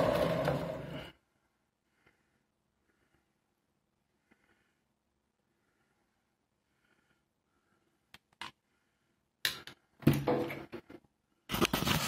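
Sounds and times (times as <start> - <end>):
tools and cables rustling and knocking: 10.0 - 12.0.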